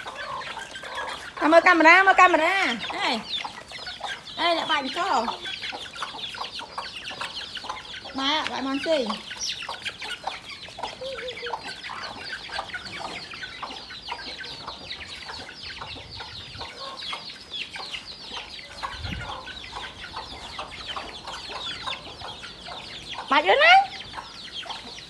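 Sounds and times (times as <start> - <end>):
chicken clucks: 0.0 - 25.0
chicks peeping: 0.0 - 25.0.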